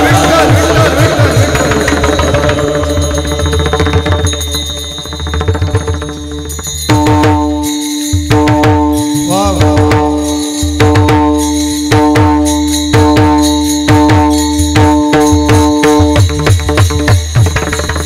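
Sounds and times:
drum strokes: 0.0s - 18.0s
hand cymbals: 0.0s - 18.0s.

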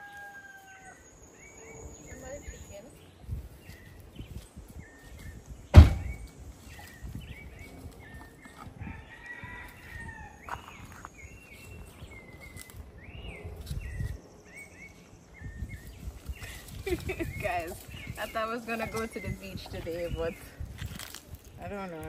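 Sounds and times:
birds chirping: 0.0s - 22.0s
loud thump: 5.7s - 6.3s.

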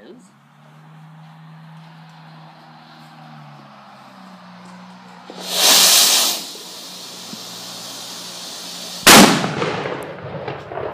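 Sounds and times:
firework hissing whoosh: 5.2s - 9.8s
fainter steady hiss: 5.3s - 9.5s
firework bang: 5.3s - 10.9s.

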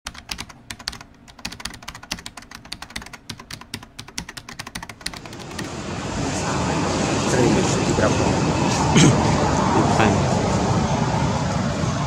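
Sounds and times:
keyboard typing clicks: 0.1s - 5.7s.

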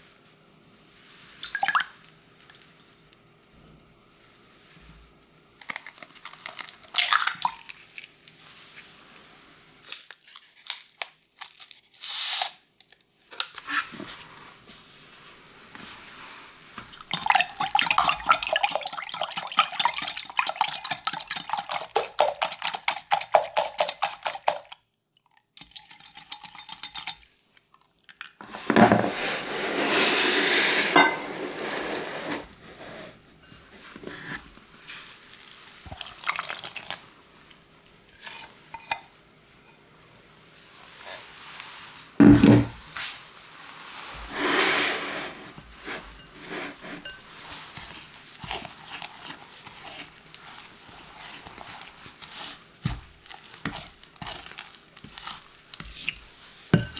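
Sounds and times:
liquid pouring: 1.4s - 2.0s, 17.1s - 24.7s, 34.1s - 37.0s
whisk clicking against glass jug: 17.1s - 24.8s, 25.6s - 27.2s
spatula scraping glass bowl: 28.5s - 34.4s, 44.3s - 52.6s, 53.4s - 56.9s.

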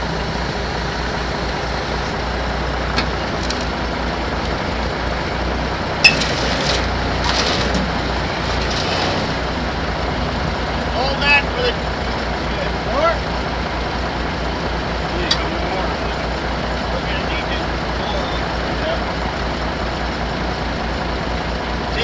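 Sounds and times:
diesel engine idling: 0.0s - 22.0s
metal clanks: 6.0s - 9.5s, 15.2s - 15.6s.

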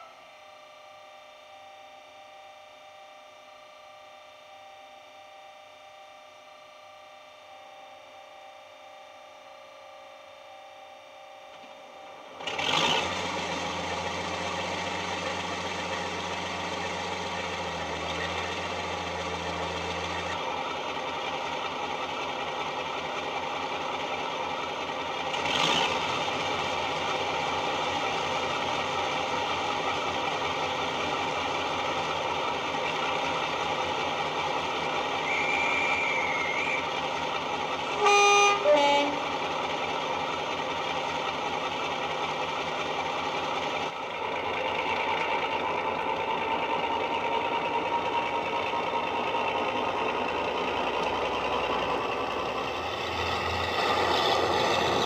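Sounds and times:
diesel engine starting and idling: 11.6s - 55.0s.

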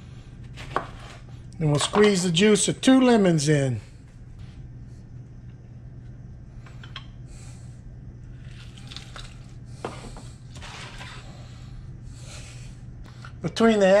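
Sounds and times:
steady low hum: 0.0s - 14.0s
wet squishes of squeezed lemon: 8.4s - 9.5s.

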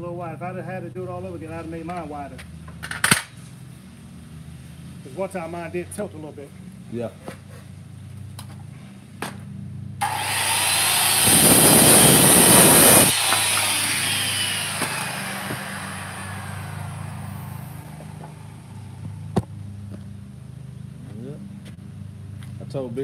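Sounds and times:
circular saw cutting wood: 10.0s - 19.3s
saw blade spinning down whine: 10.0s - 19.3s.

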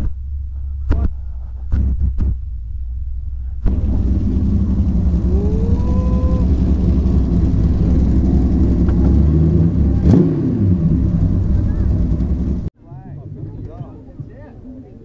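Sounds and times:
engine throttle blip: 0.0s - 12.7s
loud engine idling: 2.4s - 12.7s.

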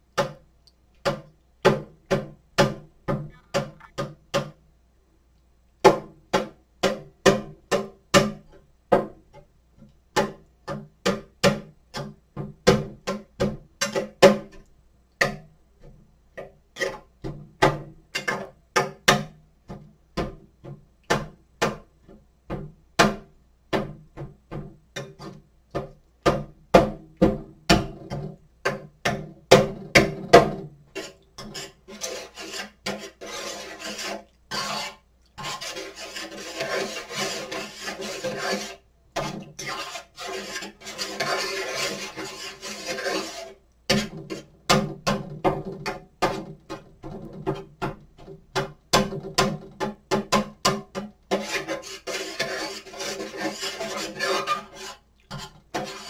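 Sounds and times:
continuous rasping scrape: 30.9s - 44.6s, 51.3s - 56.0s.

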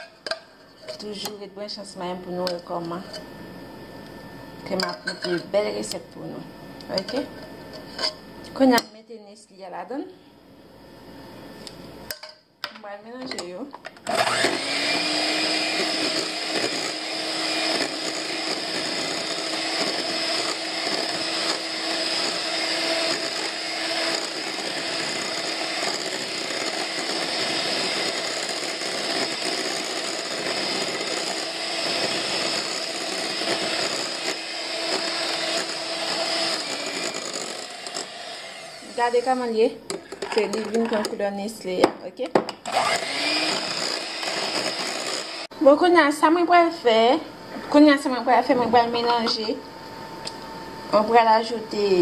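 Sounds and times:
electric hand mixer whisking: 14.1s - 41.2s, 42.6s - 45.5s.

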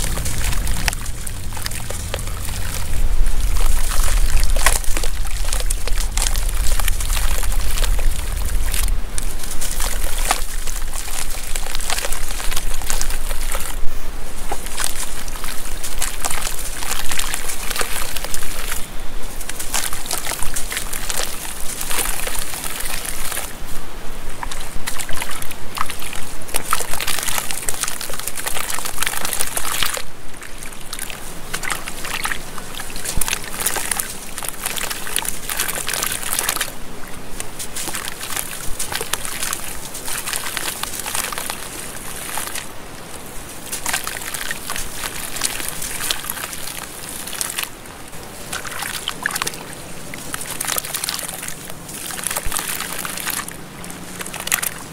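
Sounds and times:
water sloshing and splashing: 0.0s - 54.9s
hands crumbling wet block: 37.4s - 42.7s.

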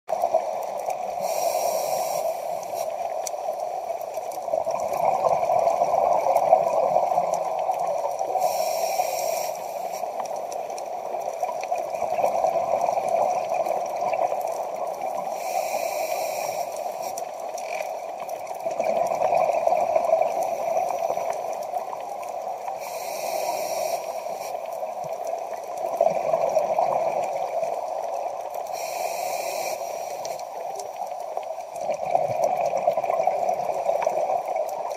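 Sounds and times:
diver breathing through regulator: 1.2s - 2.9s, 8.4s - 10.0s, 15.3s - 17.1s, 22.8s - 24.5s, 28.7s - 30.4s.

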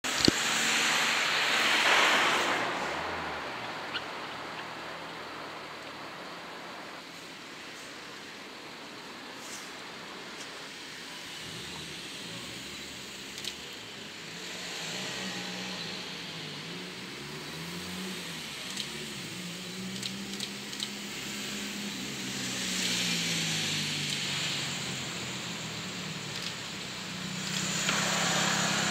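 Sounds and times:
wheels rumbling on rail: 0.0s - 28.9s
electric train motor hum: 10.1s - 28.9s
sharp clicks: 19.9s - 21.0s, 26.3s - 26.6s, 27.4s - 28.1s.

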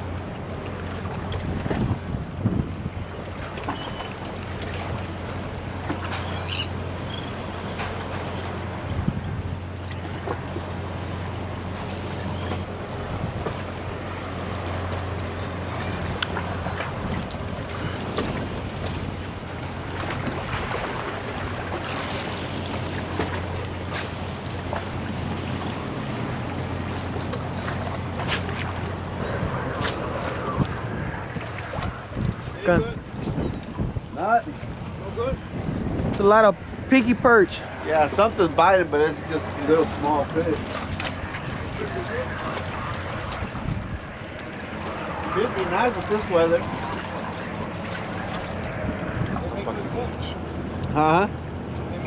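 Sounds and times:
boat engine drone: 0.0s - 52.0s
wind on microphone: 1.0s - 5.4s, 8.6s - 9.8s, 11.7s - 52.0s
bird chirps: 6.2s - 7.6s.

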